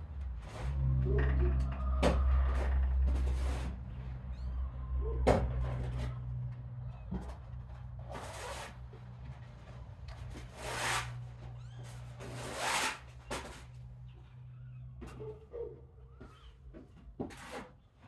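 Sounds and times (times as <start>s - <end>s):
low hum: 0.0s - 8.1s.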